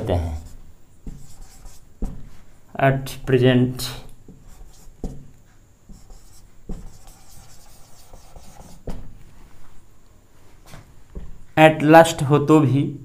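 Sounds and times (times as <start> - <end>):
marker writing on whiteboard: 0.0 - 2.4, 4.0 - 9.2.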